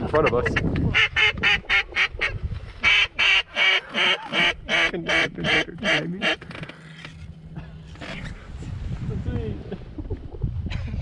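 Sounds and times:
duck call quacks: 0.4 - 6.4.

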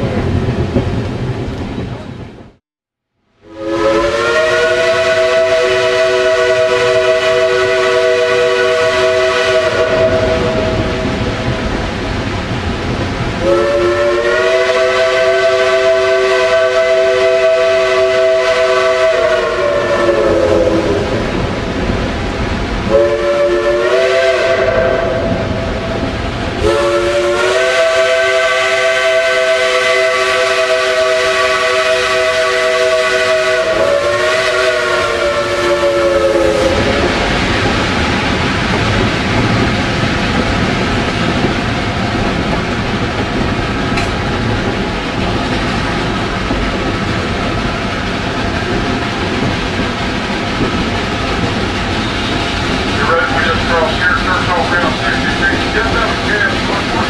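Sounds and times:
train running noise: 0.0 - 2.6, 3.6 - 57.0
steam locomotive whistle blasts: 3.4 - 11.0, 13.4 - 21.2, 22.9 - 25.5, 26.6 - 37.2.

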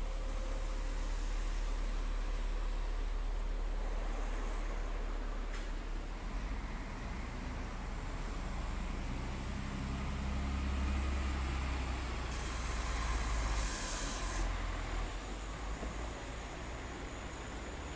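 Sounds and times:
bus driving past: 0.0 - 17.9
air brakes hissing: 12.2 - 15.0.

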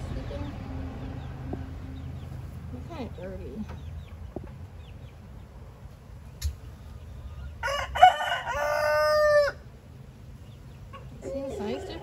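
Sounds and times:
rooster crowing: 7.6 - 9.6.

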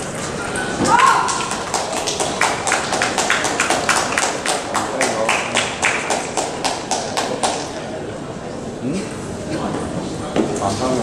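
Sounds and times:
spectators clapping in rhythm: 1.0 - 7.8.

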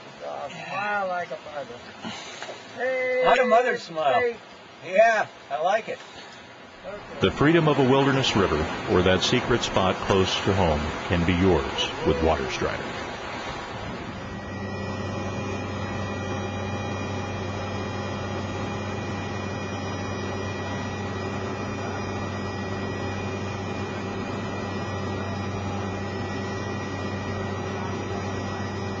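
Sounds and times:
helicopter cabin drone and whine: 6.8 - 29.0.

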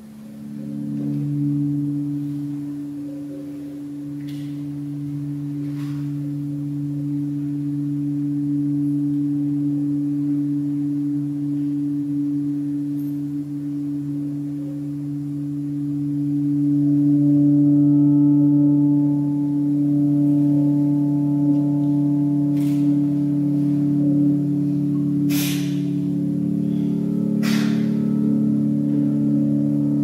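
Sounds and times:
low musical drone: 0.0 - 30.0.

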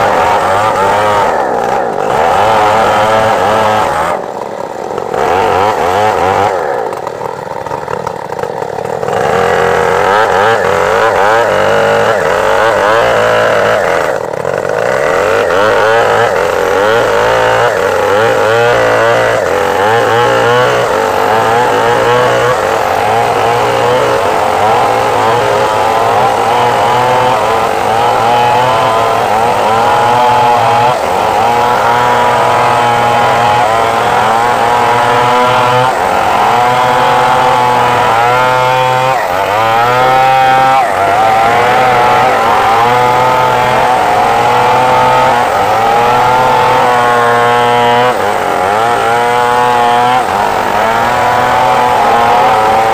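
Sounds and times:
chainsaw cutting a log: 0.0 - 52.9.

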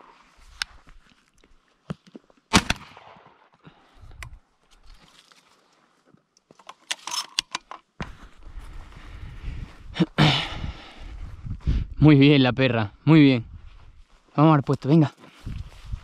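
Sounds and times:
shotgun shot: 2.5 - 3.4
metallic clicks and rattles: 6.6 - 7.8.

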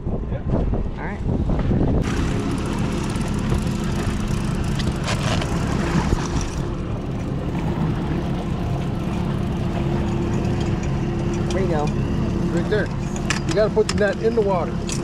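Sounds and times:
wind: 0.0 - 15.0
outboard motor idling: 2.0 - 15.0
water noise: 2.0 - 15.0.

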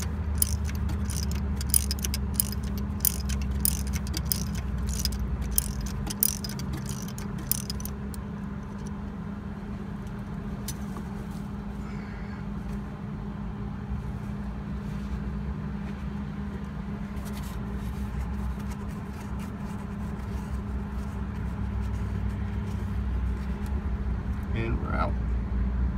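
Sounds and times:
ratchet wrench clicking: 0.0 - 8.9.

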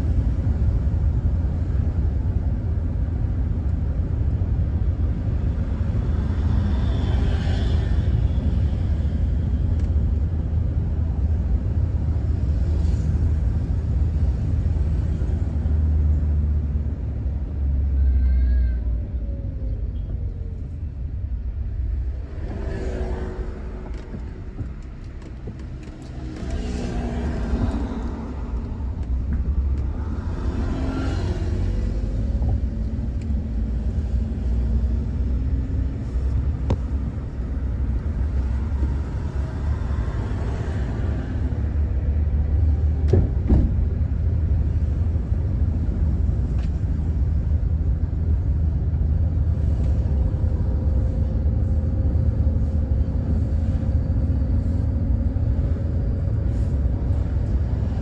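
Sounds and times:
passing vehicles: 0.0 - 58.0
road and engine rumble in car: 0.0 - 58.0.

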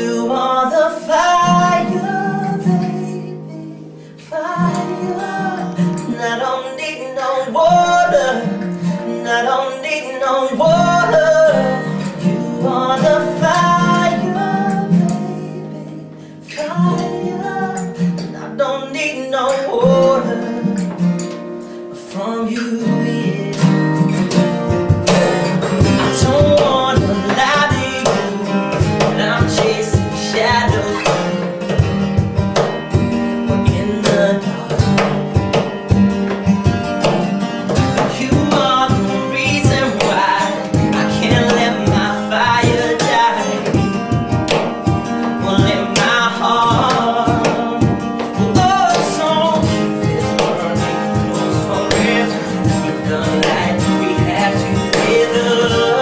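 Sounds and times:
acoustic guitars strumming: 0.0 - 56.0
man singing: 0.0 - 56.0
percussive beat: 23.5 - 56.0.

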